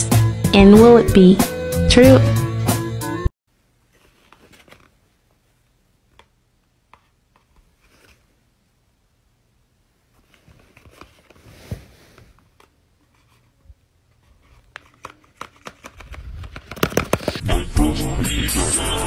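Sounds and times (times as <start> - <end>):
paper and fabric rustling: 3.8 - 5.1, 6.9 - 8.4, 10.0 - 17.4.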